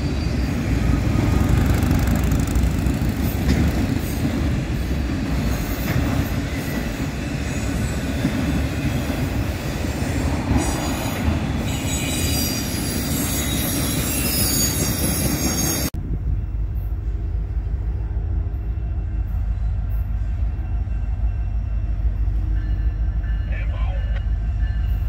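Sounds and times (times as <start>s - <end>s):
train wheels squealing and clattering: 0.0s - 16.0s
distant diesel locomotives rumbling: 0.0s - 25.0s.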